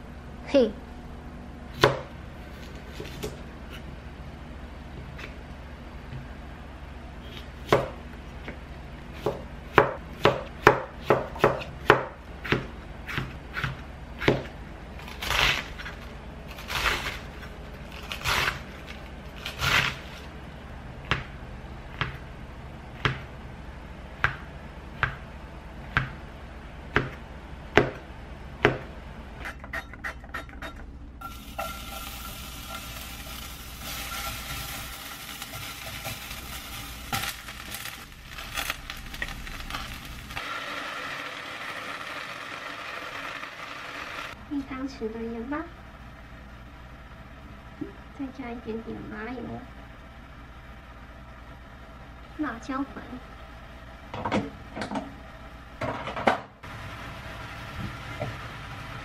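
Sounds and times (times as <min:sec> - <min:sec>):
knife chopping on plastic board: 0:09.2 - 0:14.5, 0:23.0 - 0:23.3, 0:24.2 - 0:25.2, 0:26.9 - 0:28.0
garlic sizzling in a pan: 0:31.2 - 0:44.4.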